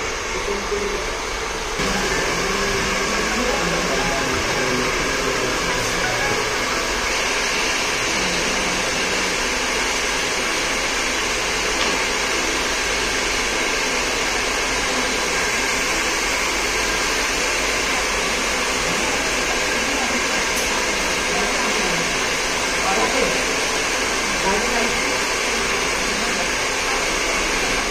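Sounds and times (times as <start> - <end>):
hair dryer blowing: 0.0 - 27.9.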